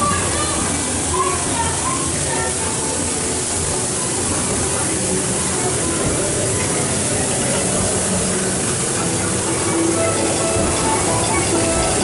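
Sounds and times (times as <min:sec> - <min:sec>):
faint voices: 0:00.0 - 0:12.0
steady hiss-like ambience: 0:00.0 - 0:12.0
ride soundtrack music: 0:05.7 - 0:12.0.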